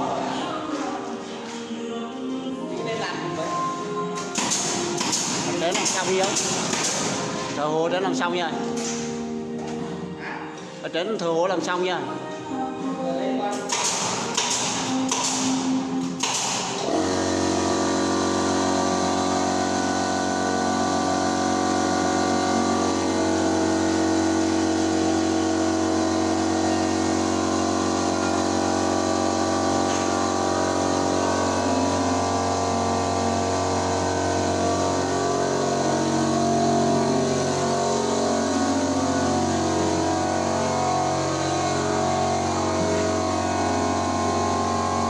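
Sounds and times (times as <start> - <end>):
machine humming: 13.5 - 45.0.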